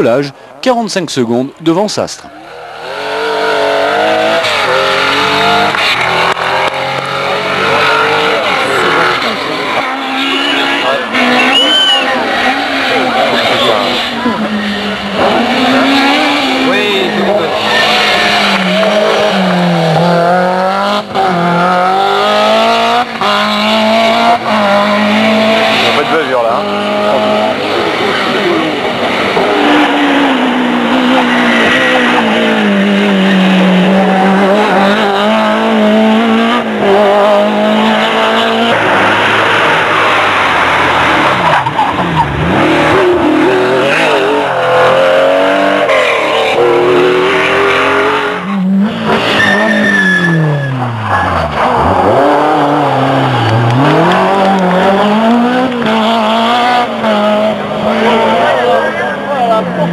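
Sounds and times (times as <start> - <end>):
rally car engines revving: 1.2 - 59.9
tyres squealing: 7.5 - 19.2, 45.9 - 52.3.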